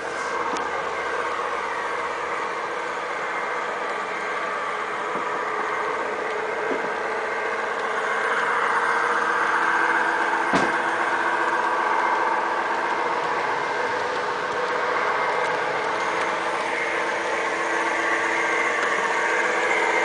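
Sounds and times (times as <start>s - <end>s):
model train mechanical hum: 0.0s - 20.0s.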